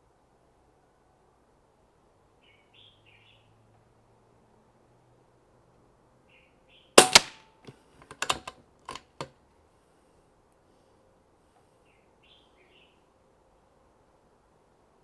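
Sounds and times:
rifle action clicks: 7.0 - 7.4, 8.0 - 9.3
air rifle shot crack: 7.0 - 7.5.

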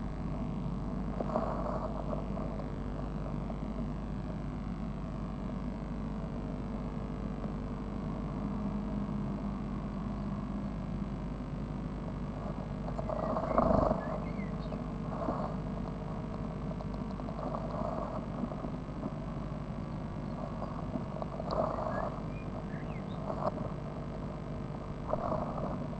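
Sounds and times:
steady electrical hum: 0.0 - 25.9
nestlings rustling and scratching: 12.3 - 25.9.

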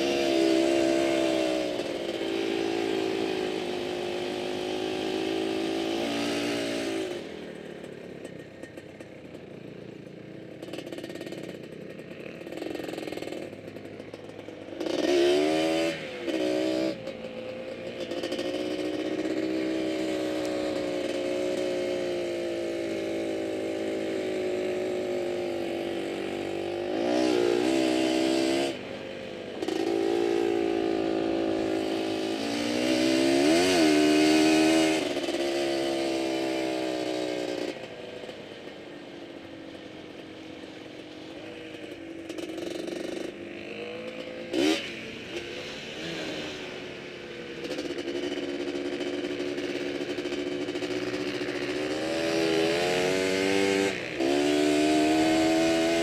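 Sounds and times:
quad engine revving: 0.0 - 8.3, 10.4 - 38.4, 41.8 - 56.0.

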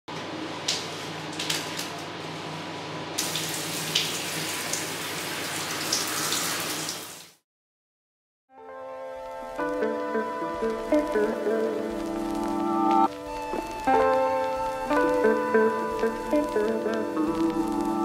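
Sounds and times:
shower spray on tiles: 3.2 - 7.4.

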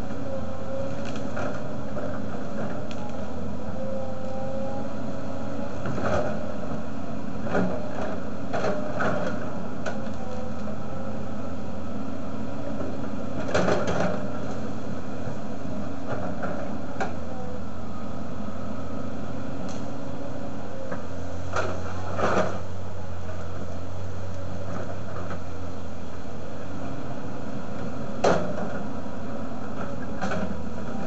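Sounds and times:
excavator diesel engine running: 0.0 - 31.0
branches snapping: 0.9 - 1.4.

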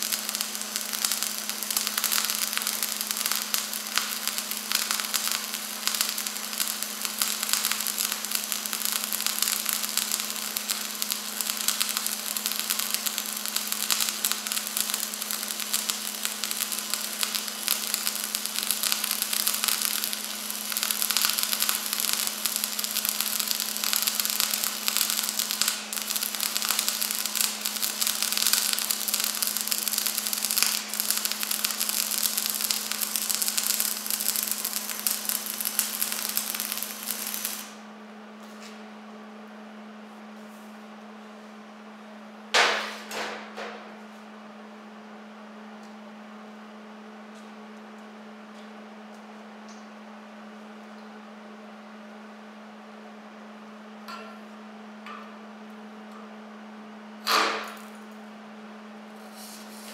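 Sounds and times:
welding arc crackling: 0.0 - 37.9, 59.2 - 59.9.

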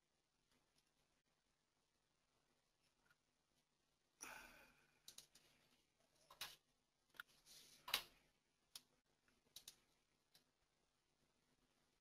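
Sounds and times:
soft breath: 4.2 - 5.8.

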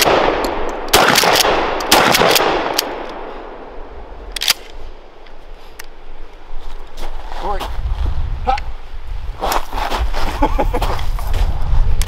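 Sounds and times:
shotgun shots with echo: 0.0 - 3.0.

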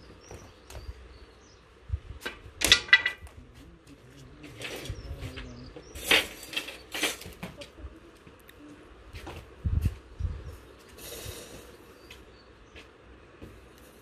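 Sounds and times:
metal clattering and clanking: 2.6 - 3.4, 4.4 - 7.6.

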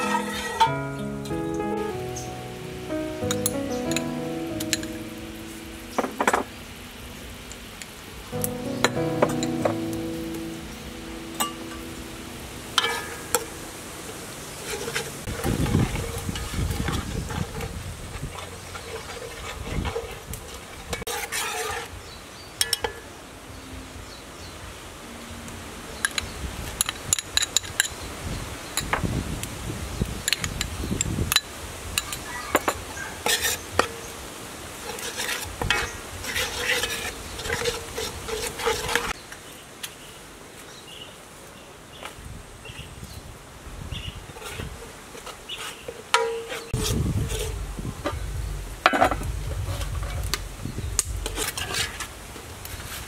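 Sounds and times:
metal spoon scraping a pot: 18.3 - 21.9, 33.2 - 33.6, 34.9 - 39.1.

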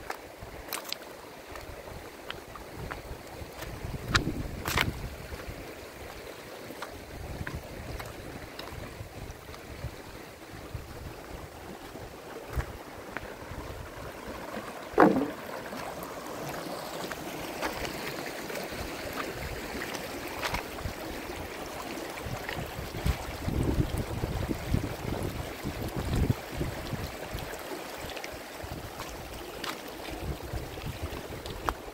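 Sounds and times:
stream over gravel and stones: 0.0 - 31.9
wind rumbling on microphone: 1.5 - 6.2, 7.0 - 15.4, 20.4 - 27.5, 30.1 - 31.9.

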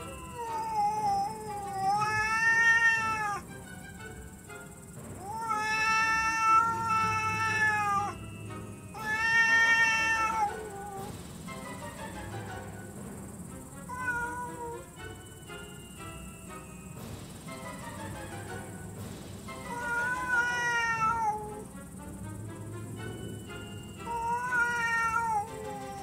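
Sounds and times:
cats yowling: 0.0 - 3.5, 4.4 - 11.1, 13.2 - 14.9, 19.6 - 22.0, 23.8 - 26.0.

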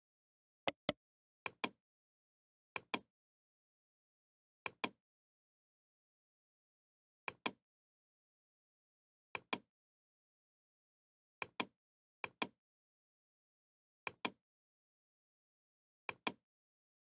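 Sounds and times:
computer mouse clicking: 0.7 - 1.0.

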